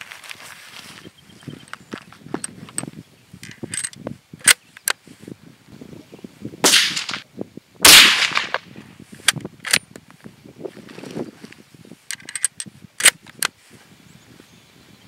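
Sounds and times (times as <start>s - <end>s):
rifle gunshots: 6.6s - 7.2s, 7.8s - 8.7s.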